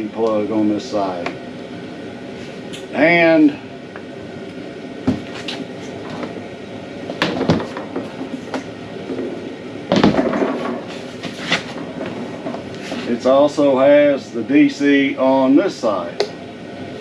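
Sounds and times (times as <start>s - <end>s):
cooler case knocking on wood: 7.2s - 8.3s
cooler scraping on wooden crate: 10.3s - 13.2s.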